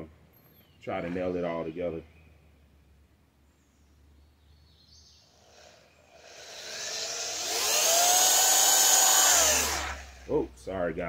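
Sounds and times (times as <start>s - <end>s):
power drill whining: 5.5s - 10.4s.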